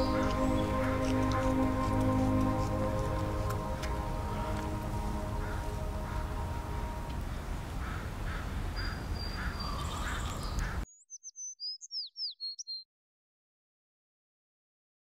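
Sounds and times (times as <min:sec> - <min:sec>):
low outdoor rumble: 0:00.0 - 0:08.6
high falling bird chirps: 0:08.8 - 0:12.8.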